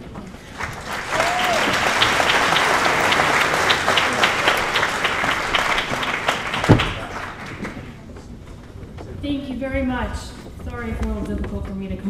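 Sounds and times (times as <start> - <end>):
audience applauding: 0.2 - 8.1.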